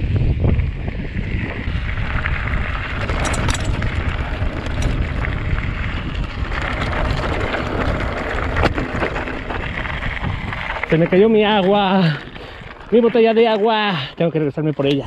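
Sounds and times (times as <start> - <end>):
wind rushing over microphone: 0.0 - 13.3
bike frame rattling over stones: 1.2 - 15.0.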